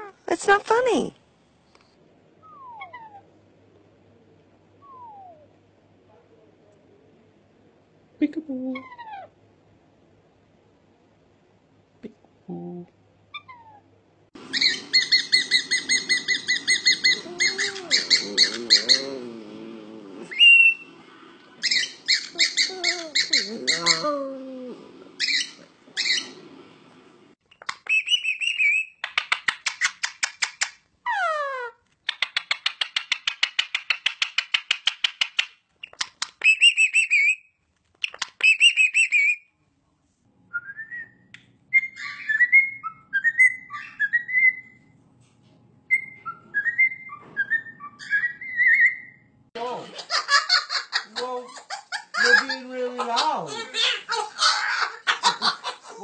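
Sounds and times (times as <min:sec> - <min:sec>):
parrots chirping: 0:02.5 - 0:03.3, 0:14.4 - 0:39.4, 0:41.7 - 0:44.9, 0:45.9 - 0:56.0
parrot chattering and squawk: 0:08.7 - 0:09.4, 0:14.4 - 0:26.5, 0:27.5 - 0:37.4, 0:41.8 - 0:44.8, 0:49.8 - 0:56.0
bird whistled phrases: 0:14.5 - 0:19.0, 0:20.3 - 0:20.9, 0:27.9 - 0:29.0, 0:36.4 - 0:37.4, 0:38.4 - 0:39.4.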